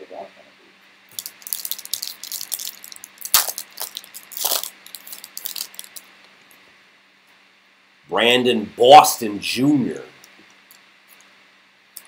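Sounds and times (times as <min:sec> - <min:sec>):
foil wrapper crinkling and tearing: 0:01.1 - 0:06.1.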